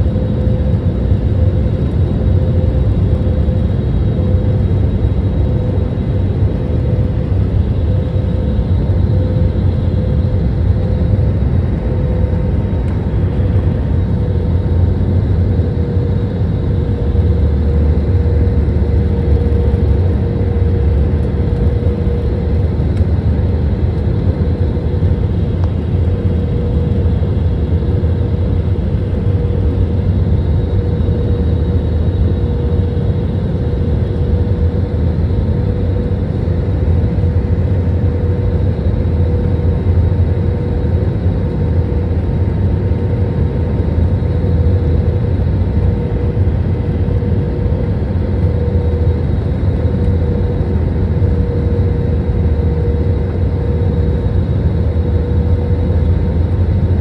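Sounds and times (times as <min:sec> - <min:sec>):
constant hum: 0:00.0 - 0:57.0
turbofan engine rumble: 0:00.0 - 0:57.0.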